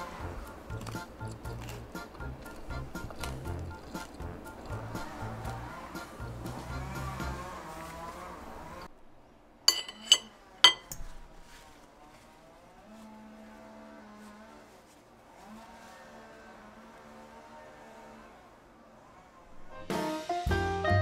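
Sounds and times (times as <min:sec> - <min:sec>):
continuous background sound: 0:00.0 - 0:21.0
cutlery clinking on a plate: 0:09.7 - 0:11.1.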